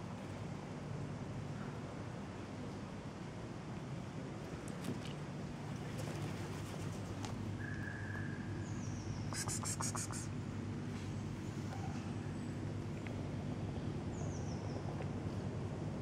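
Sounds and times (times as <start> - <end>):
low mechanical hum: 0.0 - 16.0.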